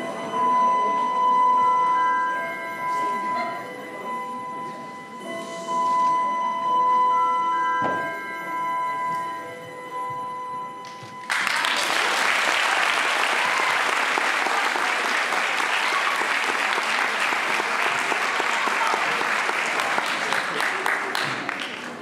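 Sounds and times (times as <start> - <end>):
audience applauding: 10.8 - 22.0.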